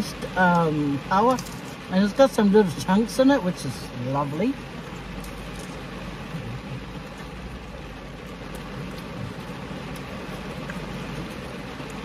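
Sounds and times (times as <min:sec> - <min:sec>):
rain on a car roof: 0:00.0 - 0:12.0
faint raindrop ticks: 0:00.5 - 0:01.7, 0:08.2 - 0:12.0.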